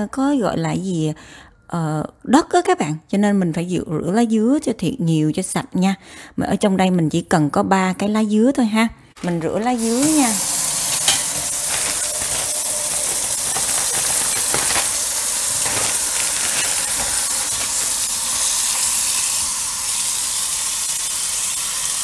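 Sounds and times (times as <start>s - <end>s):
tap running into a colander: 9.2s - 22.0s.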